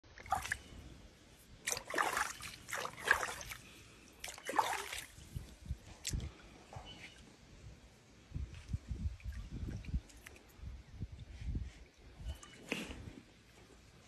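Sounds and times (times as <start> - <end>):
pool water splashing: 0.1 - 0.8, 1.4 - 5.3.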